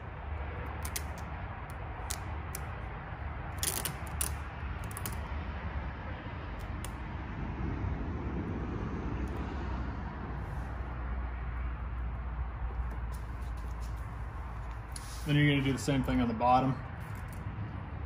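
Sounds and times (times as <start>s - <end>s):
adhesive film crackling: 0.6s - 2.9s, 3.5s - 5.2s.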